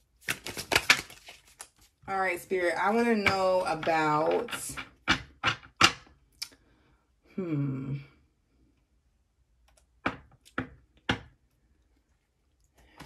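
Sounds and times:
cards shuffling: 0.1 - 2.0
cards slapping: 0.2 - 1.9
woman humming: 7.3 - 8.1.

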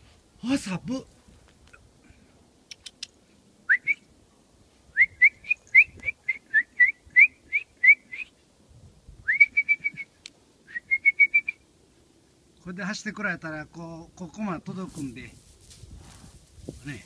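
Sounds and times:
faint clicks: 2.7 - 3.2.

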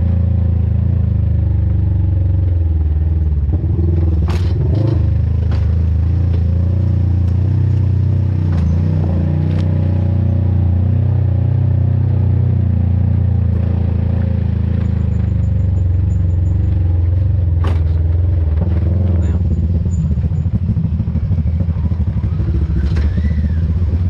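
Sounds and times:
off-road vehicle engine running: 0.0 - 24.0
sharp knocks and clatters: 4.2 - 6.6, 17.6 - 18.9.

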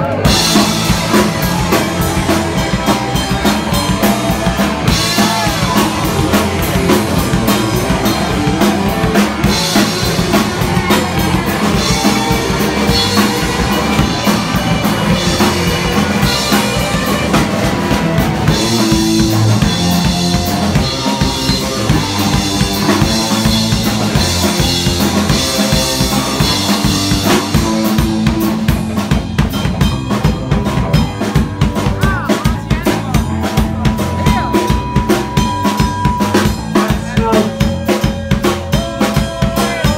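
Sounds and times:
drums: 0.0 - 39.9
live punk band playing: 0.0 - 39.9.

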